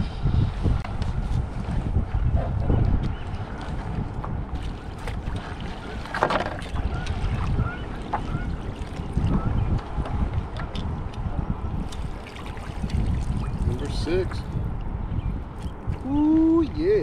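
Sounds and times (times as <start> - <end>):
wind buffeting microphone: 0.0 - 17.0
water splash: 11.9 - 13.6.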